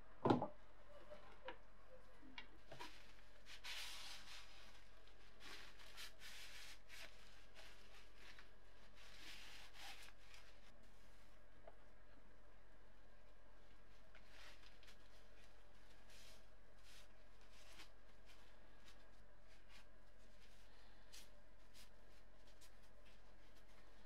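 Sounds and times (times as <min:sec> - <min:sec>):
paper towel rustling and wiping: 0:02.6 - 0:11.5, 0:13.6 - 0:24.0.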